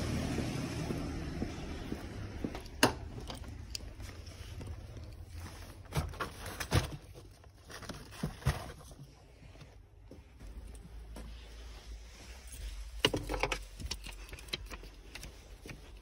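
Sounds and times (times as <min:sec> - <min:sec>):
footsteps on concrete floor: 0:00.0 - 0:06.0, 0:08.8 - 0:13.0.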